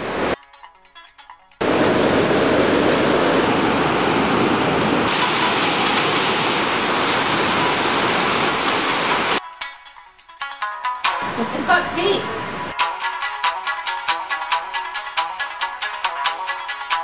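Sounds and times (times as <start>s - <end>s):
rushing white water: 0.0s - 0.4s, 1.6s - 9.4s, 11.2s - 12.7s.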